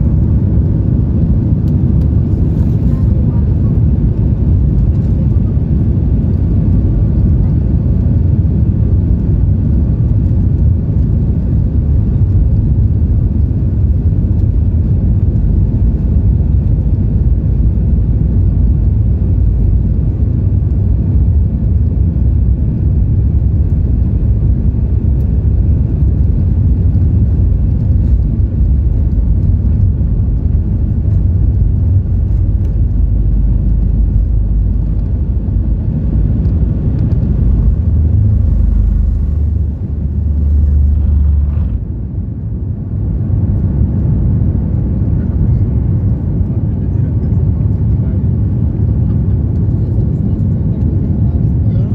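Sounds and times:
aircraft cabin low rumble: 0:00.0 - 0:51.9.

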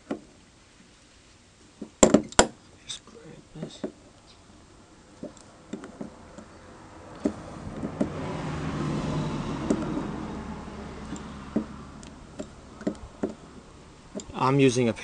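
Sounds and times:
vehicle passing: 0:04.7 - 0:14.7.

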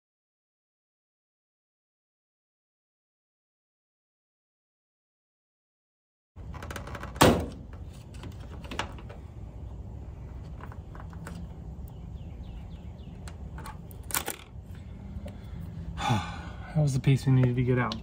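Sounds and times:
steady low hum: 0:07.3 - 0:18.0.

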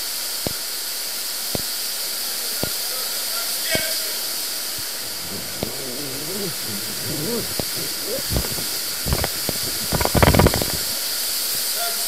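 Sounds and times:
faint wavering voices: 0:04.4 - 0:11.2.

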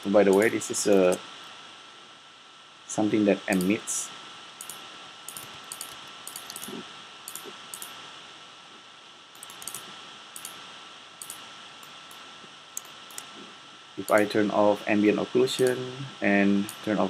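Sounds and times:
background hiss: 0:00.0 - 0:17.0
mouse and keyboard clicks: 0:04.6 - 0:07.9, 0:09.4 - 0:09.8, 0:11.2 - 0:12.0, 0:12.8 - 0:13.3.

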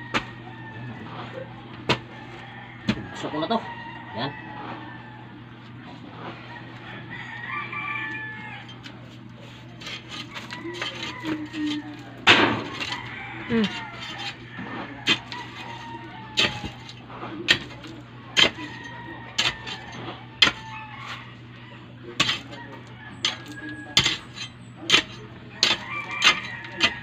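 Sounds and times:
metal bar striking stony soil: 0:09.8 - 0:13.0, 0:16.4 - 0:18.8, 0:20.4 - 0:20.7, 0:22.2 - 0:22.6, 0:23.2 - 0:27.0.

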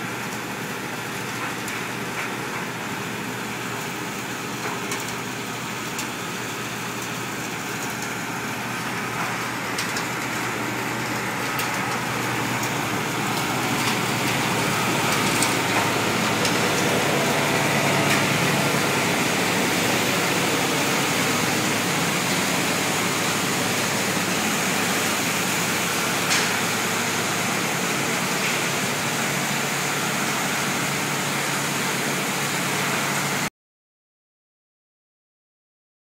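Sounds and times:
machinery running: 0:07.1 - 0:33.4.

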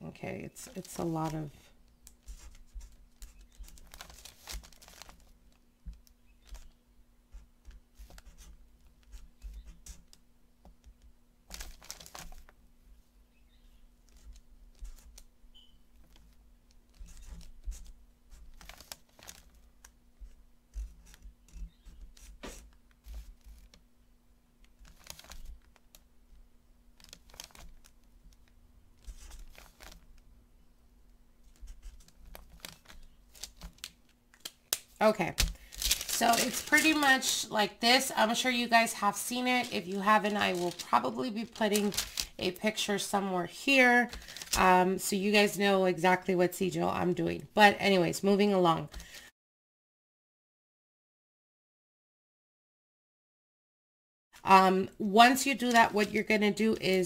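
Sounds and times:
faint steady hum: 0:00.0 - 0:49.2
marker scratching on paper: 0:07.3 - 0:10.2, 0:20.2 - 0:23.6.

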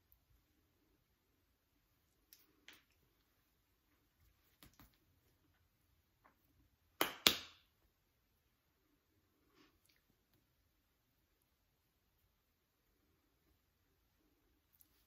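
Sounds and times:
hands and clothing rustling: 0:02.2 - 0:05.8
hands smacking: 0:04.4 - 0:05.1, 0:07.0 - 0:07.7.

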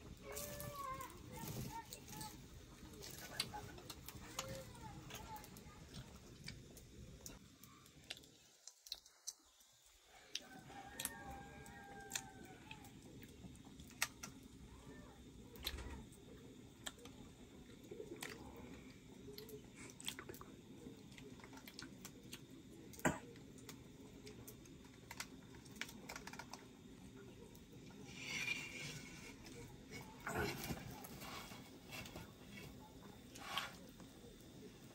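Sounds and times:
crunchy food cracking: 0:00.3 - 0:14.6, 0:15.5 - 0:33.8
chewing: 0:05.1 - 0:14.3, 0:16.8 - 0:22.7.

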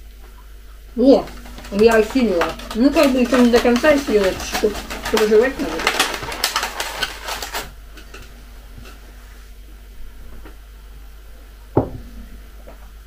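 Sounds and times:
plastic food tray crinkling: 0:01.0 - 0:09.0.

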